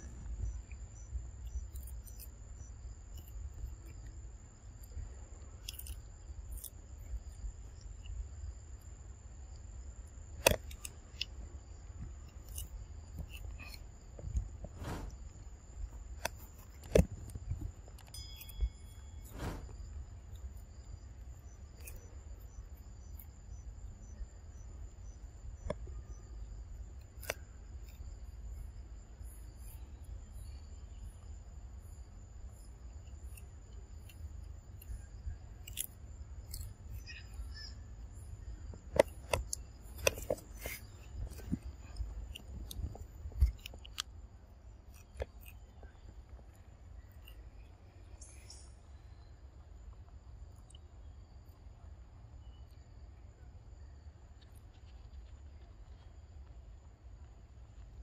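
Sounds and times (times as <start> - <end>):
high insect whine: 0.0 - 44.3
monkeys chewing food: 39.0 - 44.1.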